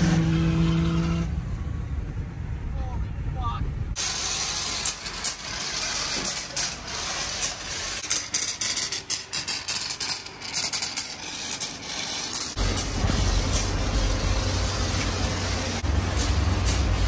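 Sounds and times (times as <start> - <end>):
car wash spray hissing: 4.0 - 8.1, 12.0 - 17.0.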